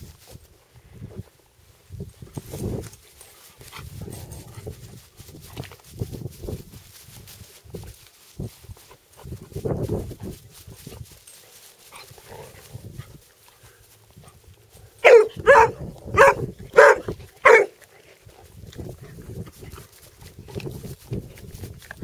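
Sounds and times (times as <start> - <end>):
dog barking: 15.0 - 17.8.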